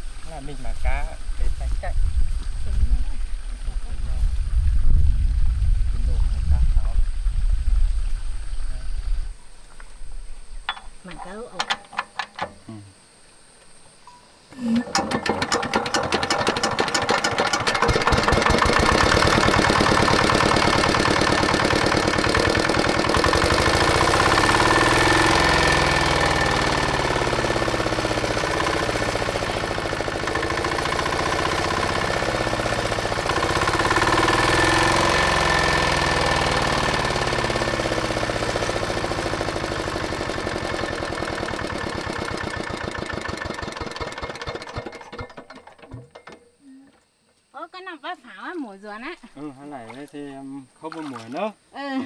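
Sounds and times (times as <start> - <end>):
diesel tractor engine running: 14.8 - 46.2.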